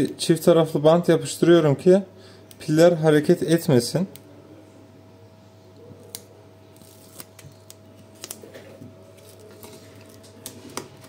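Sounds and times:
faint steady hum: 0:00.0 - 0:11.0
tape clicking and rustling: 0:06.0 - 0:11.0.

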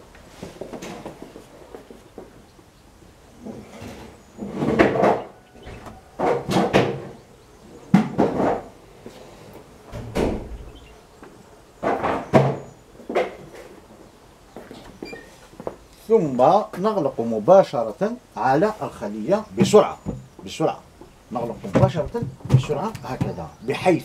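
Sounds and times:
knocks and scrapes on wood: 0:03.4 - 0:07.2, 0:07.9 - 0:09.3, 0:21.4 - 0:23.5.

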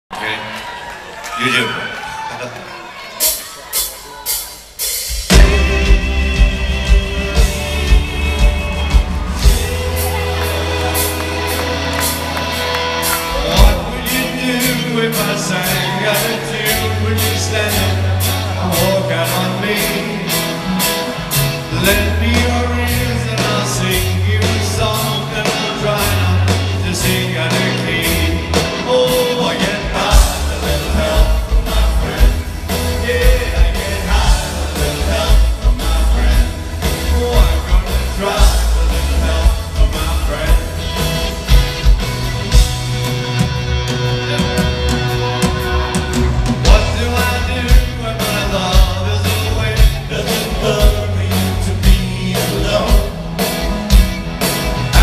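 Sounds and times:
live rock band: 0:00.1 - 0:55.0
person singing: 0:05.3 - 0:41.3, 0:43.4 - 0:53.5.

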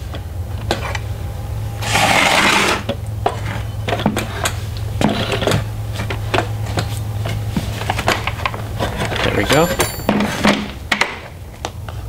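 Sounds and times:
steady low hum: 0:00.0 - 0:12.0
wood scraping on metal shaft: 0:01.8 - 0:03.6, 0:04.2 - 0:06.1.

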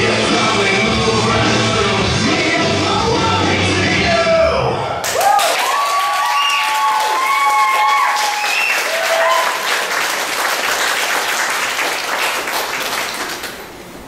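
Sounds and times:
crowd whooping and cheering: 0:05.0 - 0:10.4
audience clapping: 0:05.0 - 0:13.9.

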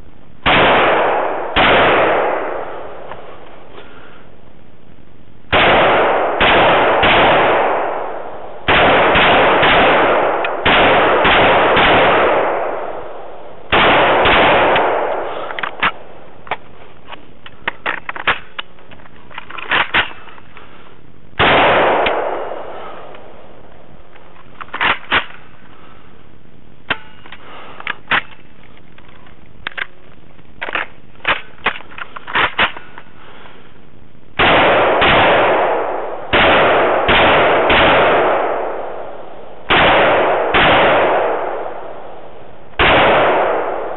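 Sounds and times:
rifle shots with ringing tail: 0:00.4 - 0:03.4, 0:05.5 - 0:16.4, 0:21.4 - 0:23.7, 0:34.4 - 0:43.9
sharp clicks and knocks: 0:15.5 - 0:20.7, 0:26.9 - 0:33.1.

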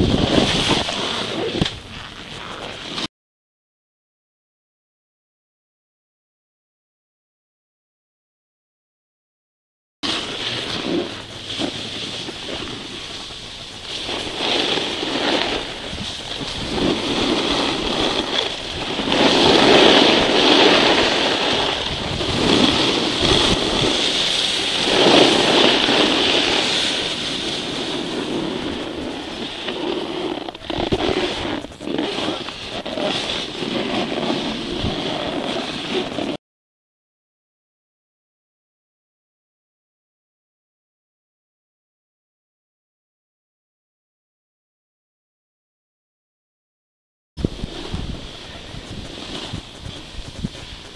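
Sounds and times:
wind rushing over microphone: 0:00.0 - 0:02.8, 0:12.0 - 0:36.4, 0:47.4 - 0:50.9
snowboards scraping on snow: 0:00.0 - 0:03.1, 0:10.0 - 0:36.4, 0:47.4 - 0:50.9.

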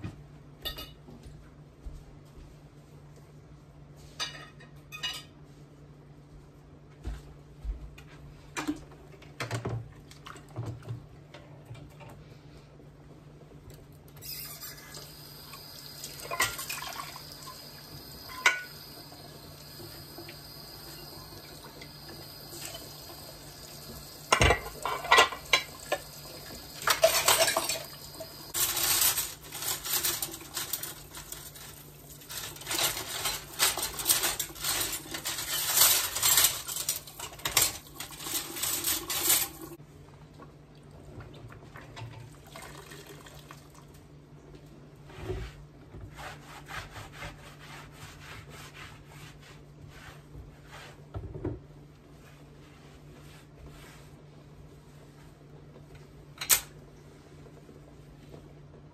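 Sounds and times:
dishes clinking in sink: 0:00.6 - 0:01.3, 0:04.1 - 0:05.4, 0:16.0 - 0:19.2, 0:23.9 - 0:31.6.

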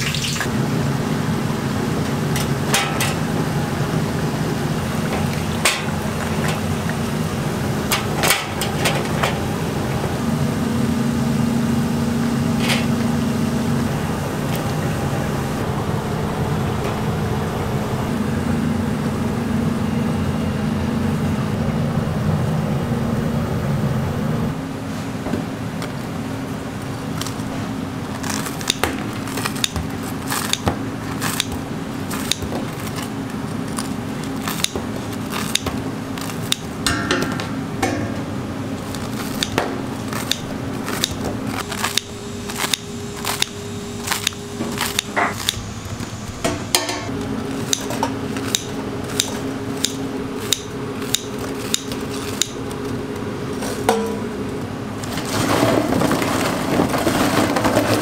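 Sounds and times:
low hum: 0:00.0 - 0:34.3
crunchy pieces crackling rustle: 0:25.9 - 0:36.5, 0:55.0 - 0:58.0
scissors snipping fried dough: 0:29.4 - 0:31.5.

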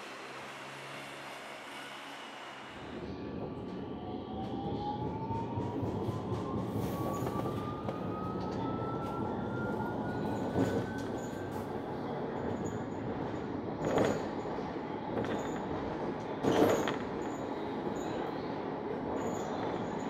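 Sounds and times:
traction motor whine rising: 0:00.0 - 0:05.0
tram rolling noise: 0:00.0 - 0:20.0.

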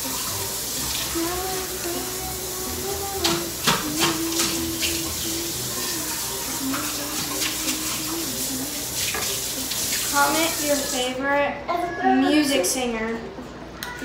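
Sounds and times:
tap running into sink: 0:03.1 - 0:05.2, 0:09.0 - 0:10.2
utensil knocking against sink: 0:03.2 - 0:04.6.

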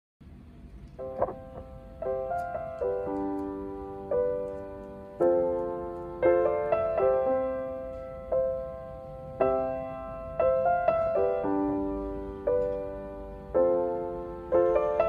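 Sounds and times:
soft piano music: 0:00.4 - 0:15.0.

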